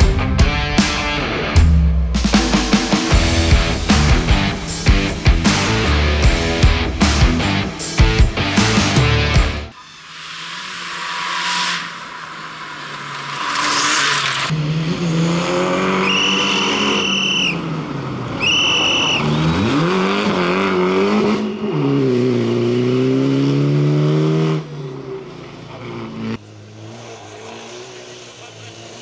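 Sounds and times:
rally car engine at full throttle: 0.0s - 29.0s
short high-pitched whistling tones: 16.0s - 17.6s, 18.4s - 19.4s.

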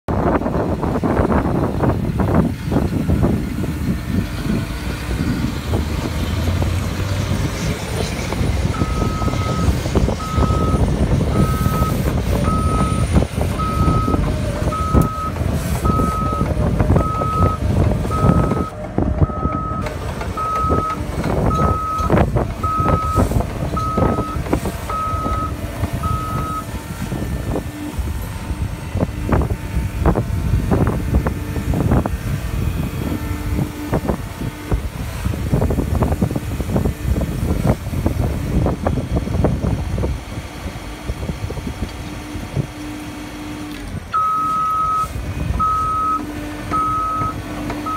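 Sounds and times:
excavator diesel engine running: 0.1s - 47.9s
backup alarm beeping: 8.8s - 26.7s, 44.2s - 47.9s.

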